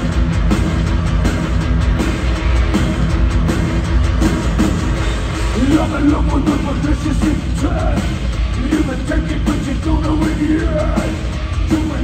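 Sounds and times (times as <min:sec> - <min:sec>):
bass guitar: 0:00.0 - 0:12.0
distorted electric guitars: 0:00.0 - 0:12.0
heavy drums: 0:00.0 - 0:12.0.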